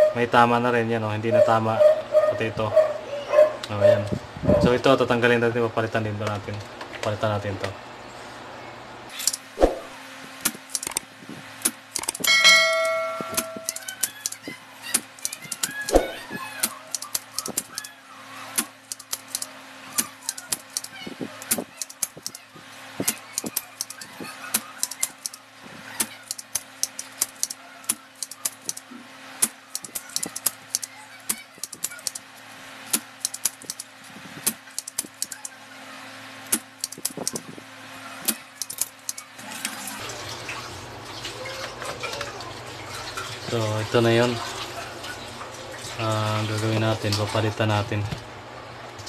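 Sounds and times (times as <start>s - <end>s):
desoldering tool clicks and taps: 10.4s - 12.3s, 16.6s - 17.9s, 18.6s - 22.4s, 23.0s - 25.4s, 26.0s - 28.8s, 29.4s - 32.2s, 32.9s - 35.5s, 36.5s - 37.5s, 38.2s - 39.3s.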